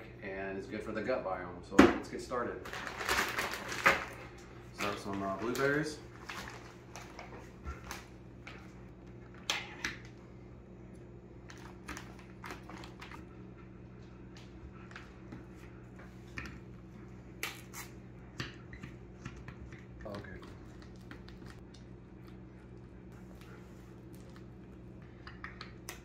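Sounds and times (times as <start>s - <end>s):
plastic bag handling: 2.6s - 8.1s.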